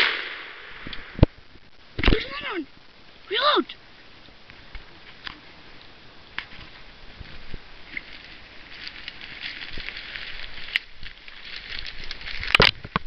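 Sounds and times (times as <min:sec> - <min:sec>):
footsteps through dry brush: 0:06.4 - 0:12.9
twigs scraping clothing: 0:06.4 - 0:13.0.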